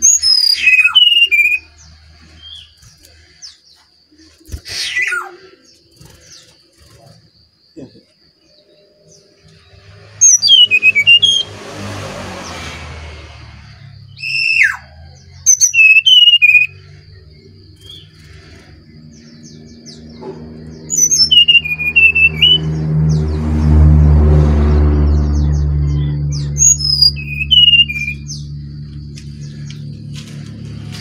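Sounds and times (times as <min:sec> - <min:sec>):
bird singing whistled phrases: 0:00.0 - 0:01.7, 0:15.5 - 0:16.8, 0:20.9 - 0:22.7, 0:26.0 - 0:28.5
low rumble: 0:22.3 - 0:27.5.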